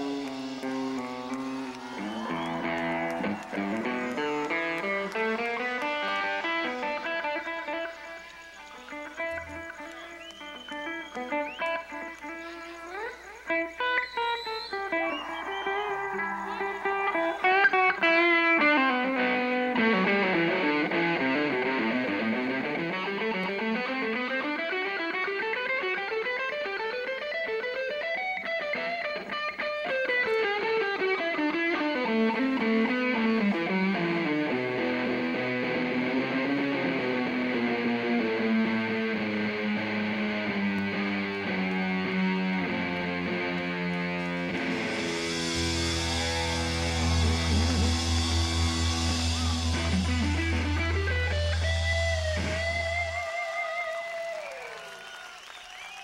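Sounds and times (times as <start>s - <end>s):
electric guitar solo: 0.0s - 55.2s
deep held low note: 46.4s - 53.2s.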